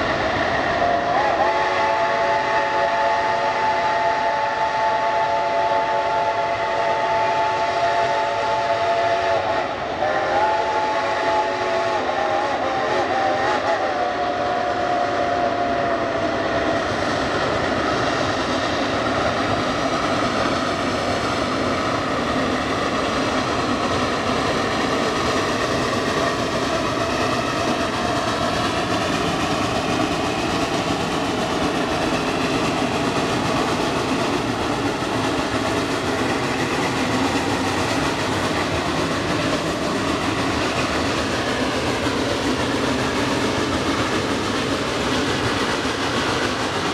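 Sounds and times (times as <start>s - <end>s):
steam locomotive working: 0.0s - 46.9s
steam whistle blowing: 0.8s - 15.6s.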